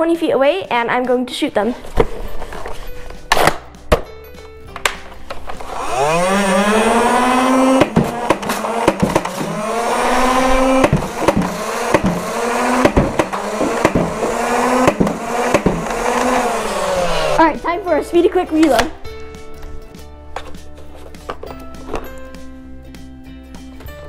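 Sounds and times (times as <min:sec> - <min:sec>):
flywheel motor whine: 0:05.6 - 0:17.4.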